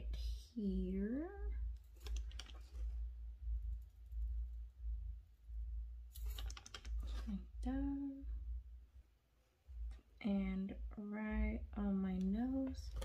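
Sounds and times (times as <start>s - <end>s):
steady deep hum: 0.0s - 13.0s.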